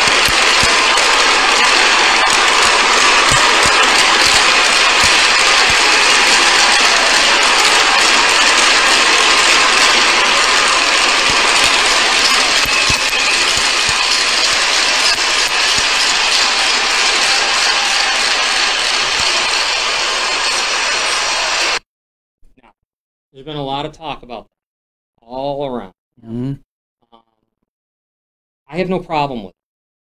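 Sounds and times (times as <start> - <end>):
arena crowd cheering: 0.0 - 21.8.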